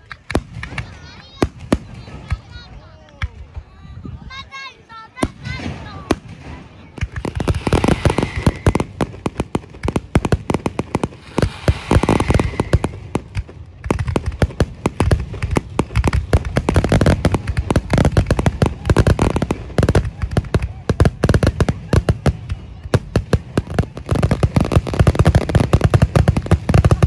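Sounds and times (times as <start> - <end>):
fireworks bangs: 0.0 - 3.7, 4.3 - 27.0.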